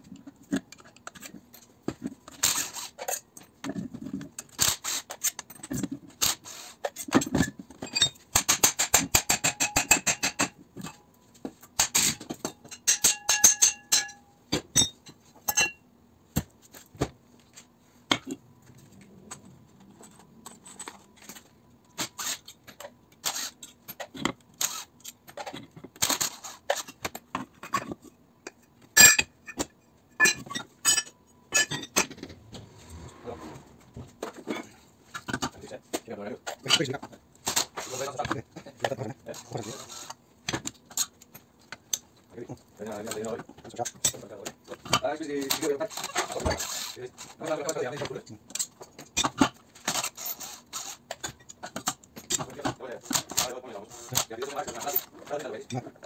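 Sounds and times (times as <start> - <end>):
metal tools clinking: 12.0 - 15.8, 19.3 - 21.5, 30.2 - 32.2
metal part ringing: 12.7 - 15.8.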